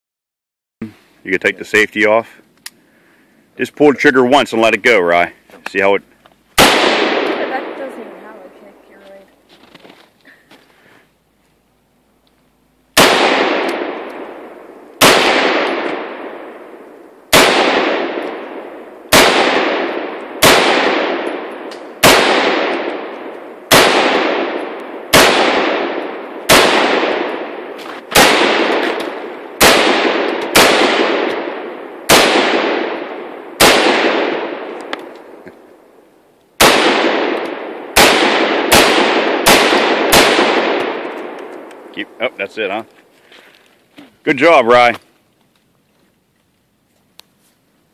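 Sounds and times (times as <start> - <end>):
rifle shots with long echo: 6.6 - 8.9, 12.9 - 42.8.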